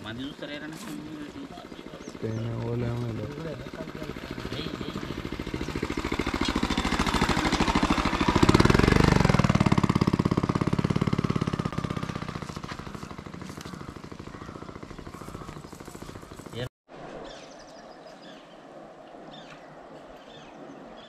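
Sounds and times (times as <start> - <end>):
vehicle engine passing: 0.0 - 16.7.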